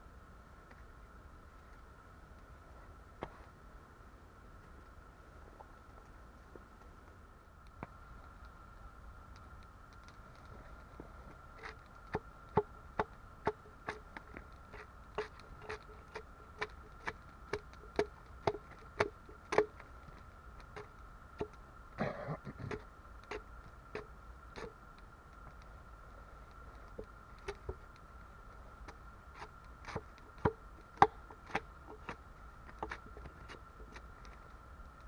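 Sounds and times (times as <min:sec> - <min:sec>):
hatchet chopping log: 0:12.1 - 0:14.0, 0:14.7 - 0:19.8, 0:29.4 - 0:32.1.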